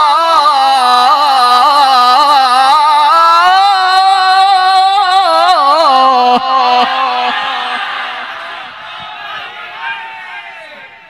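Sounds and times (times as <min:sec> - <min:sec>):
man reciting melodically over a microphone: 0:00.0 - 0:08.3
audience cheering: 0:06.6 - 0:11.0.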